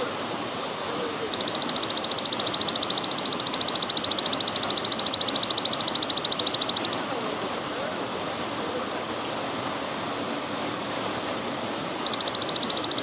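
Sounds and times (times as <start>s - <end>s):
trickling water: 0.1s - 13.0s
grasshopper high-pitched trill: 1.3s - 7.0s, 12.0s - 13.0s.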